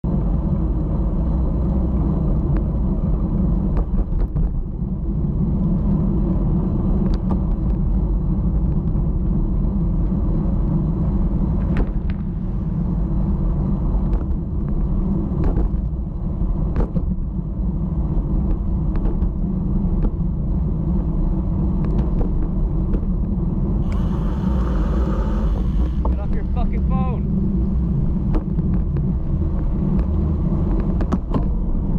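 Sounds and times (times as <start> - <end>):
road rumble: 0.0 - 31.9
sharp ticks and knocks: 29.9 - 31.6.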